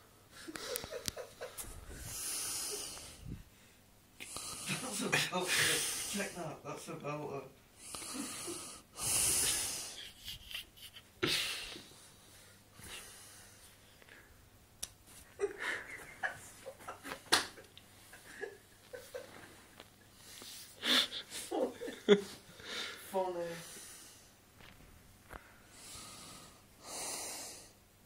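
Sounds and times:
man breathing heavily and wheezing: 0:00.3 - 0:06.3, 0:07.8 - 0:14.4, 0:25.3 - 0:27.8.

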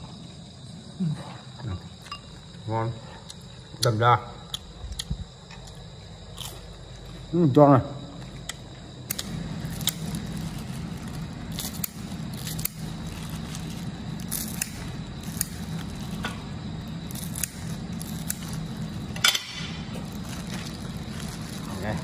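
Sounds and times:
steady low hum: 0:00.0 - 0:22.0
spring rolls crinkling and crackling: 0:04.6 - 0:22.0.

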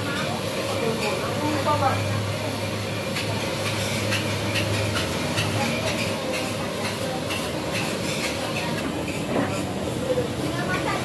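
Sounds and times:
steady rumble and hiss: 0:00.0 - 0:11.0
clinks and clatter of dishes: 0:03.0 - 0:09.7.

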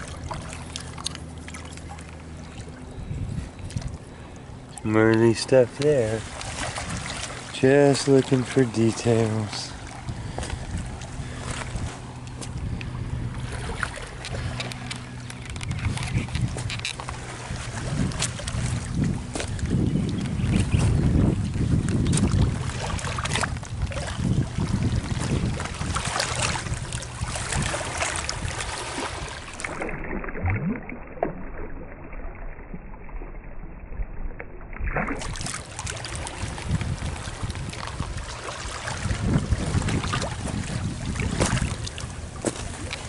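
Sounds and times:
wind buffeting microphone: 0:02.2 - 0:29.8, 0:34.8 - 0:43.0
footsteps on wet stones: 0:42.4 - 0:43.0.

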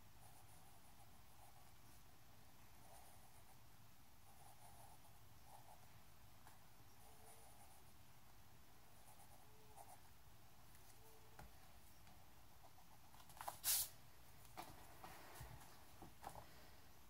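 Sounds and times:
pencil scratching on paper: 0:00.2 - 0:01.7, 0:02.8 - 0:03.6, 0:04.3 - 0:05.8.

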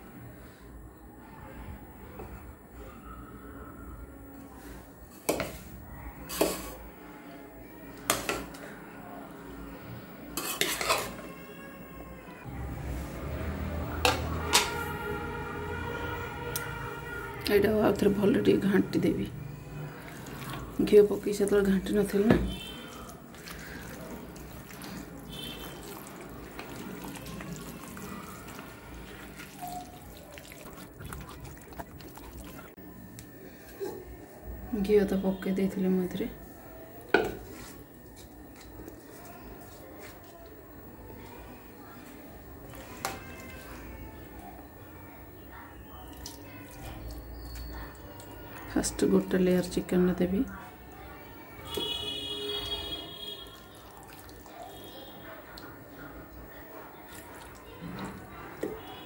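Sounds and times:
metal ladle clanking on bowl: 0:10.4 - 0:11.2
hand squishing chicken in bowl: 0:22.6 - 0:32.7.

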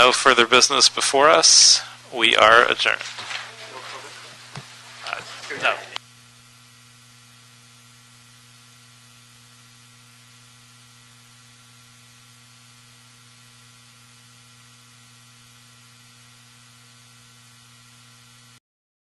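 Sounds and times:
constant hiss: 0:00.0 - 0:06.0
low electrical hum: 0:00.0 - 0:18.6.

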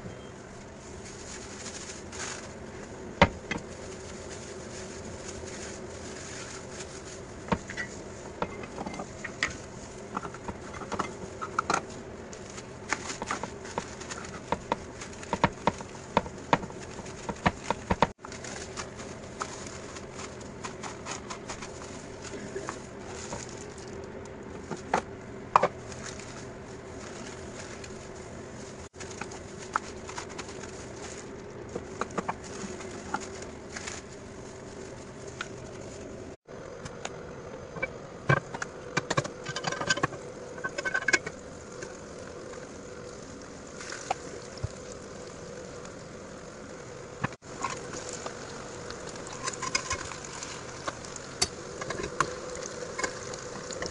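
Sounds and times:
steady low hum: 0:00.0 - 0:53.9
plastic bag crinkling: 0:00.8 - 0:24.9, 0:25.8 - 0:36.4, 0:47.4 - 0:53.9.

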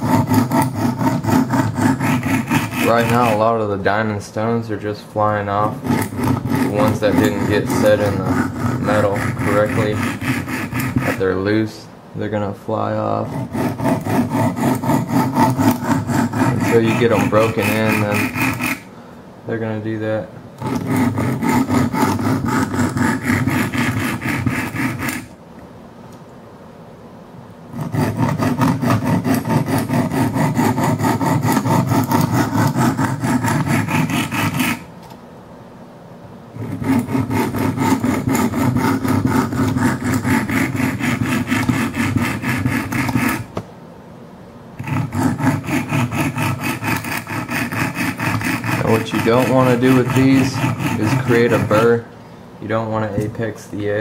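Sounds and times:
sharpening stones rasping on knife: 0:00.0 - 0:03.6, 0:05.7 - 0:11.3, 0:13.2 - 0:18.8, 0:20.6 - 0:25.3, 0:27.8 - 0:34.9, 0:36.6 - 0:43.5, 0:44.8 - 0:51.9.

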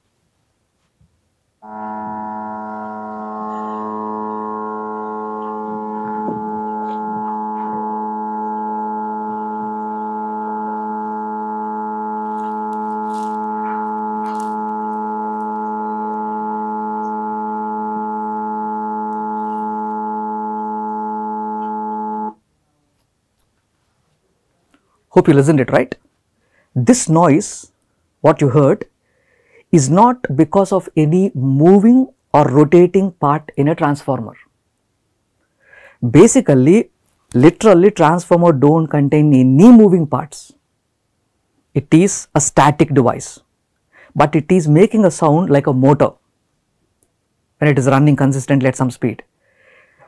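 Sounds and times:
power transformer humming: 0:01.6 - 0:22.5.

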